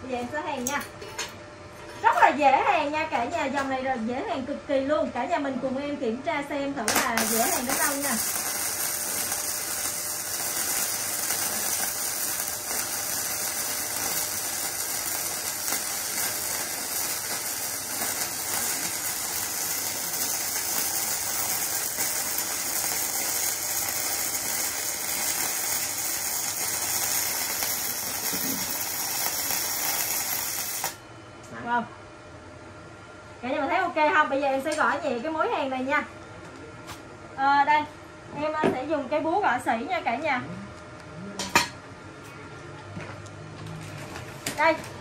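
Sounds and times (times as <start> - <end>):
welding arc crackling: 6.9 - 31.0.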